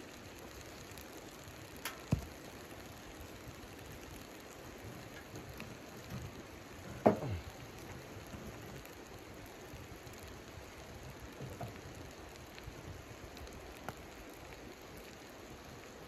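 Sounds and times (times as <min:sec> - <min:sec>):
wood fire crackling: 0:00.0 - 0:16.0
wood clacking against stove: 0:07.0 - 0:07.4.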